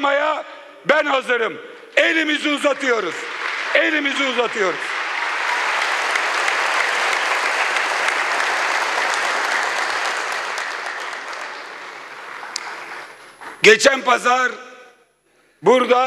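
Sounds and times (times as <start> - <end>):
audience applauding in a hall: 2.0 - 13.4.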